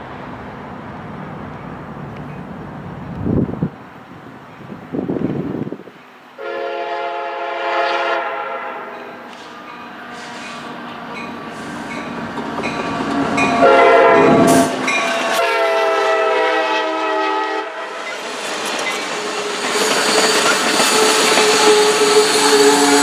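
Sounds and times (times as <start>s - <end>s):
locomotive horn: 6.4s - 11.6s, 12.7s - 18.2s, 20.3s - 23.0s
train cars clattering on rails: 8.9s - 15.8s, 18.0s - 23.0s.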